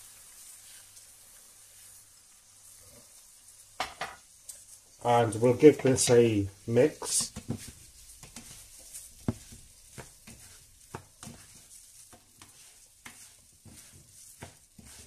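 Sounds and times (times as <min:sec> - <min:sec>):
oil sizzling: 0:00.0 - 0:15.0
spatulas scraping frying pan: 0:04.5 - 0:15.0.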